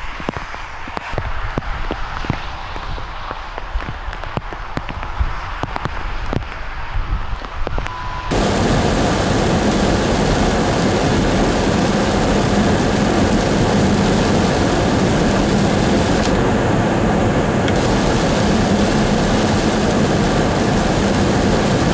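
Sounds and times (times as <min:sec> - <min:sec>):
tyres hissing on wet road: 0:00.0 - 0:07.1, 0:08.3 - 0:21.9
low engine drone: 0:07.8 - 0:21.9
rain on car roof: 0:08.3 - 0:21.9.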